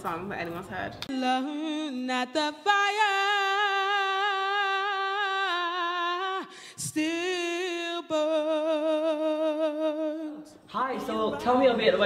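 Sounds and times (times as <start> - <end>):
woman singing: 1.1 - 10.7
singer breathing: 6.4 - 6.9.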